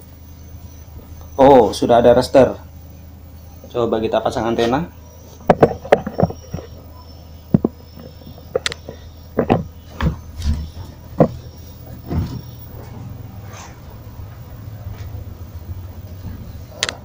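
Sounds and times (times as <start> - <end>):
steady low hum: 0.0 - 17.0
sharp clicks and knocks: 5.4 - 6.8, 7.5 - 12.5.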